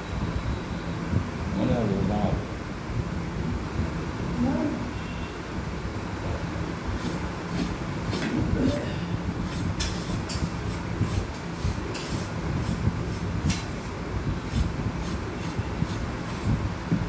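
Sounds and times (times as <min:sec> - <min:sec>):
steady low hum: 0:00.0 - 0:17.0
knife scraping vegetables: 0:07.0 - 0:13.7, 0:14.4 - 0:16.5.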